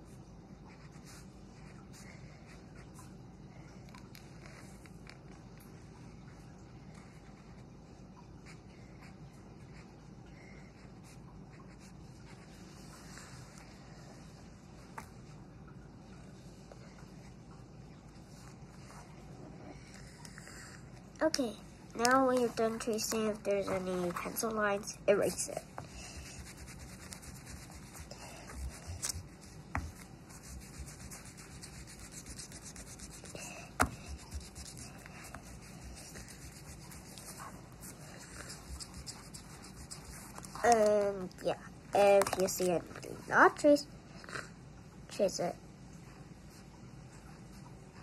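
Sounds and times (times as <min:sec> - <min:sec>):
low steady background hiss: 0:00.0 - 0:48.0
eraser rubbing on paper: 0:25.3 - 0:40.8.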